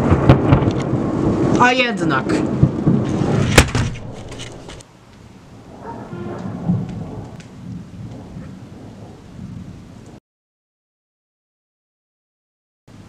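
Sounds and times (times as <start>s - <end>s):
rain falling: 0.0s - 10.2s
thunder rumbling: 0.0s - 10.2s.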